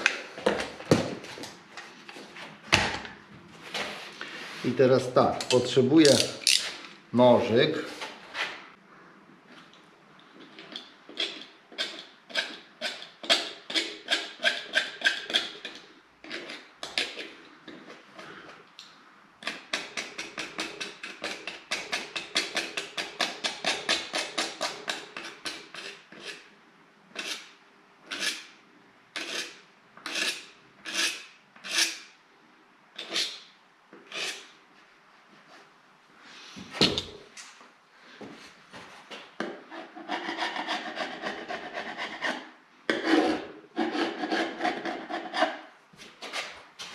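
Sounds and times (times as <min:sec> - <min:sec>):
knife scraping chipboard edge: 0:10.7 - 0:18.0, 0:28.1 - 0:28.5, 0:29.2 - 0:32.0, 0:34.0 - 0:34.5, 0:39.7 - 0:45.6.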